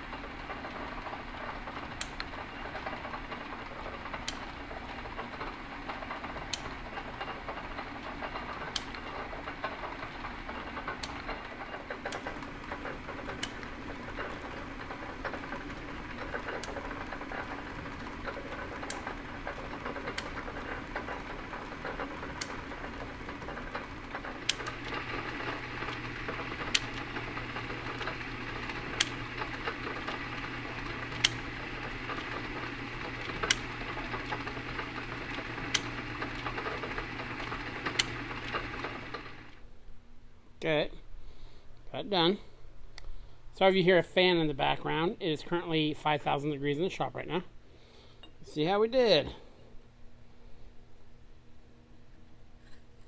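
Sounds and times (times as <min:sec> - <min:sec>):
metal shaper machine running: 0:00.0 - 0:39.6
low fan hum: 0:00.0 - 0:53.0
sharp ratchet clicks: 0:00.1 - 0:39.5.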